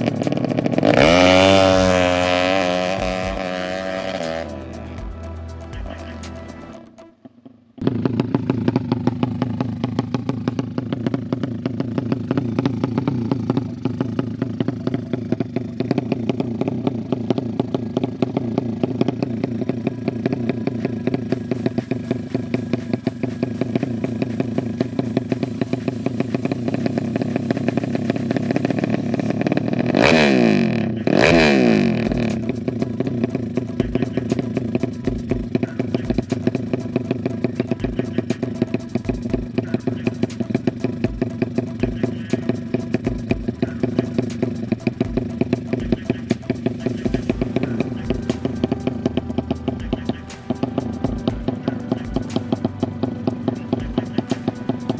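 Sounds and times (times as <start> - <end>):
motorcycle engine idling and revving: 0.0 - 54.9.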